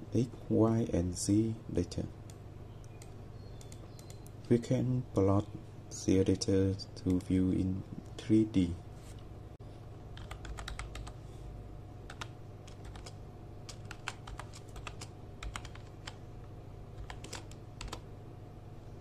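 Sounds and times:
faint low hum: 0.0s - 19.0s
keyboard keys clicking: 10.2s - 11.2s, 12.1s - 16.2s, 17.0s - 18.0s.

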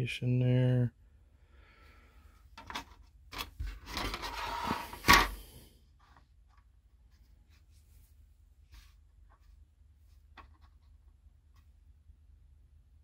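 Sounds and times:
plastic scraping and rubbing: 2.6s - 5.4s.

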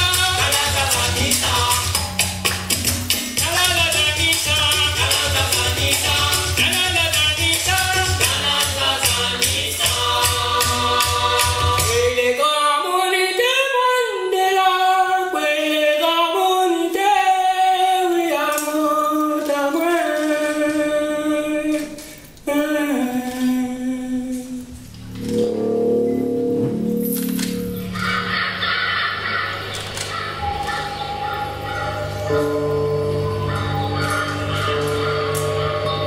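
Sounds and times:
person singing: 0.0s - 2.2s, 3.4s - 24.7s, 32.3s - 36.0s
percussion beat with deep bass: 0.0s - 12.3s.

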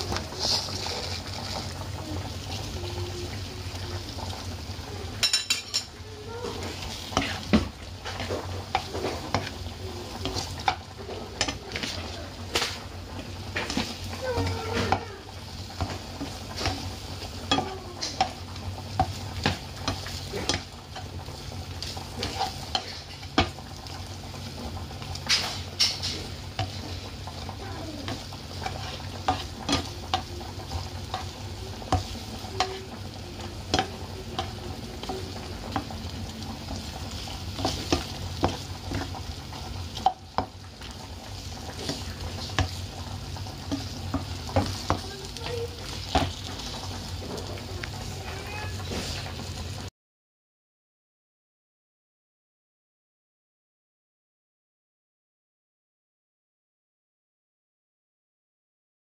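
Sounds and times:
spatula scraping a pan: 0.0s - 1.8s, 5.2s - 23.9s, 25.1s - 36.0s, 36.7s - 42.9s, 43.5s - 49.4s
chicken wings sizzling in a pan: 0.0s - 49.9s.

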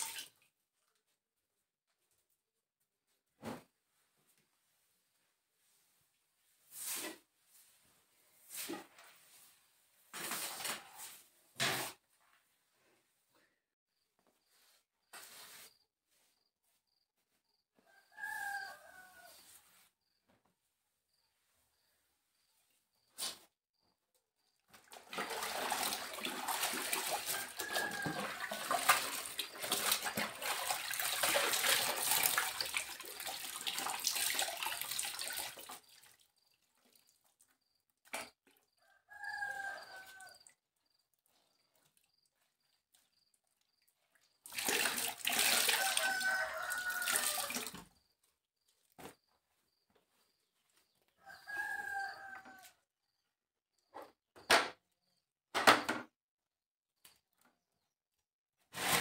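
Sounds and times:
cloth sloshed in water basin: 0.0s - 1.2s, 24.6s - 37.6s, 40.1s - 47.9s.

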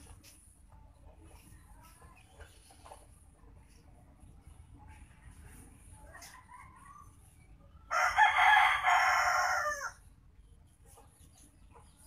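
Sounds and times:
rooster crowing: 7.9s - 10.0s.

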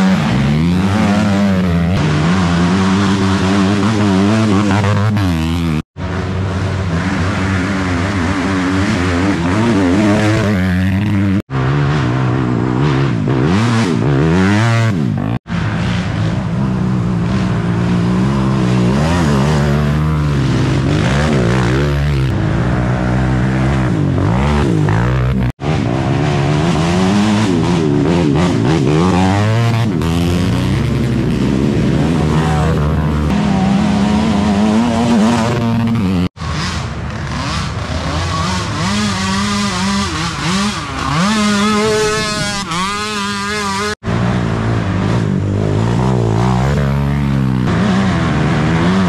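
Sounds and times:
quad engines revving together: 17.3s - 49.0s.

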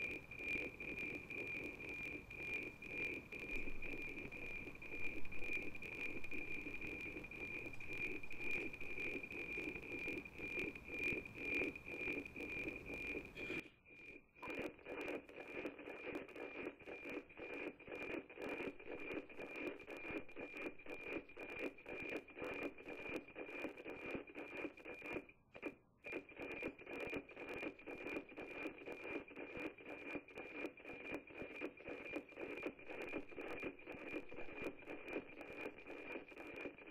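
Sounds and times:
satellite signal tone with ticking: 0.0s - 36.9s
radio hiss: 1.9s - 13.7s, 14.4s - 19.6s.

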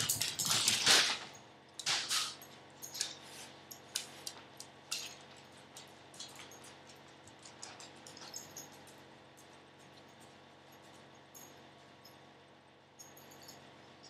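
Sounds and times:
light metallic clinks: 2.3s - 12.4s, 13.0s - 14.0s.

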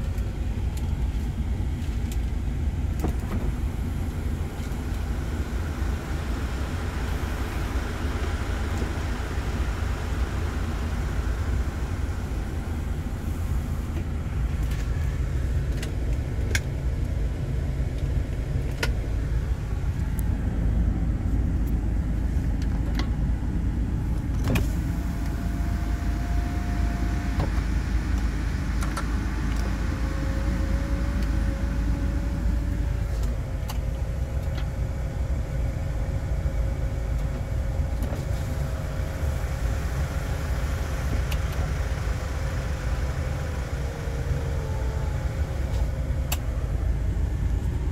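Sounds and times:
car engine idling: 0.0s - 47.9s.

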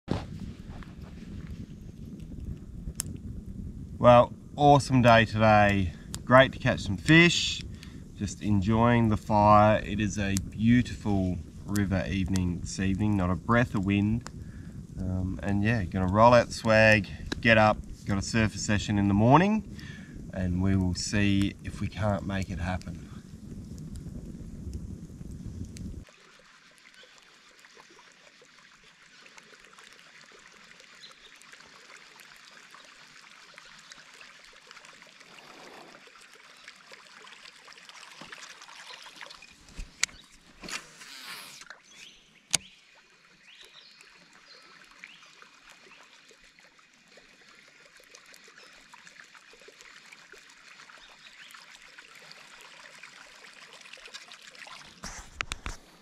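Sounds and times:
night ambience high hiss: 4.0s - 14.3s
short rustle: 39.7s - 42.1s.

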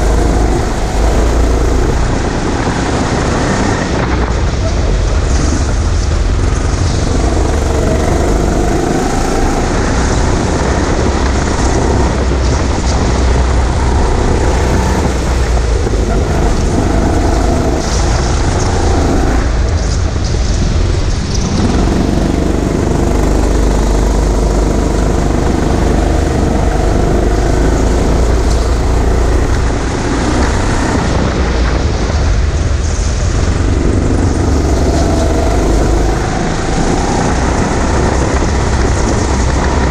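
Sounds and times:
go-kart motor running: 0.0s - 39.9s.

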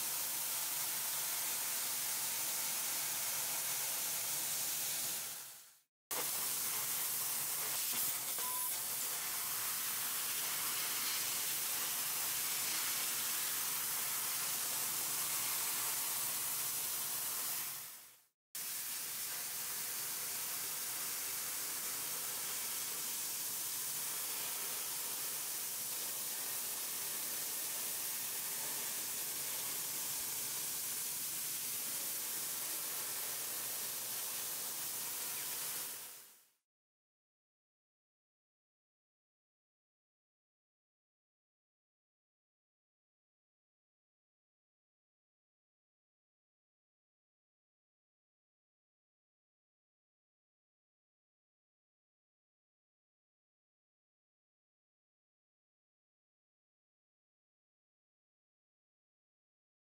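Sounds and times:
laser cutting jet hissing: 6.1s - 18.0s.

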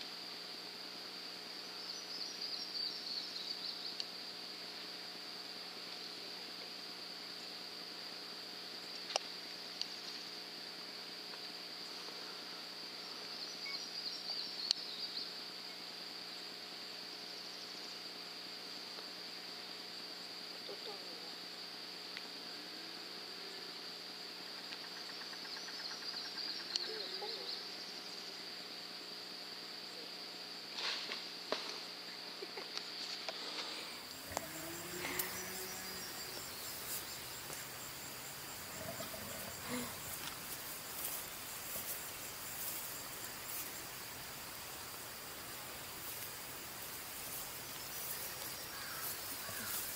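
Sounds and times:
insects droning: 0.0s - 49.9s
insect pulsing trill: 23.3s - 28.8s, 33.9s - 49.9s.

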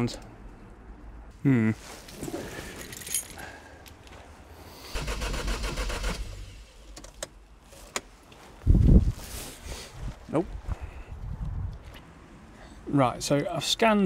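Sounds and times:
keys jangling: 2.7s - 4.0s
engine cranking on starter: 4.9s - 7.2s.

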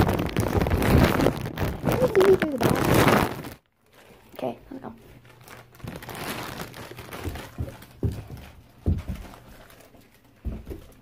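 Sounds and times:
bag rustling: 5.2s - 10.2s
child's footsteps on floor: 5.8s - 11.0s.

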